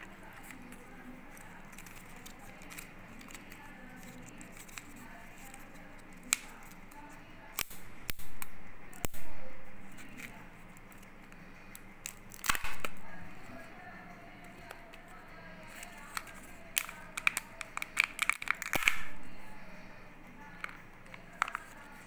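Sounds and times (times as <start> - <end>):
plastic clicks and cracks: 0.2 - 9.3, 10.0 - 13.1, 15.7 - 19.2, 20.5 - 22.0
foil seal crackling: 15.7 - 19.0.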